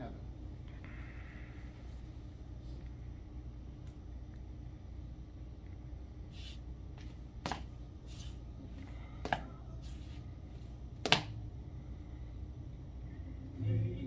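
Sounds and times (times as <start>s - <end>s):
low room hum: 0.0s - 14.0s
soft brushing or rustling: 6.3s - 10.7s.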